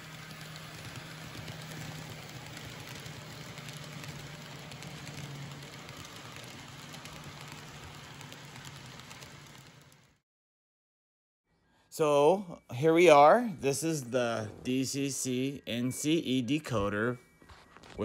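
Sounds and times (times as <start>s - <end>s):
metal wheels rolling on rails: 0.0s - 10.1s
model train motors whirring: 0.0s - 10.1s.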